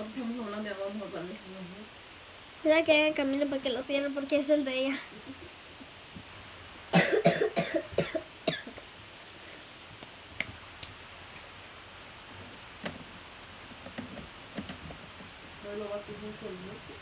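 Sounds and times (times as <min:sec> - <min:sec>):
person coughing: 0:07.0 - 0:08.8.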